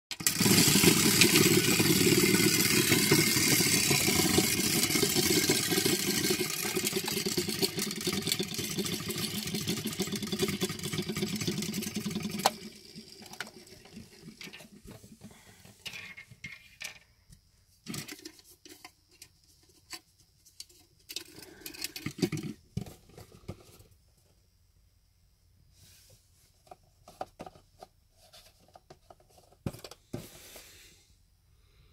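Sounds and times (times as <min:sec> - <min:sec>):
toy mechanism whirring: 0:00.1 - 0:15.0, 0:17.8 - 0:18.9, 0:20.6 - 0:23.0.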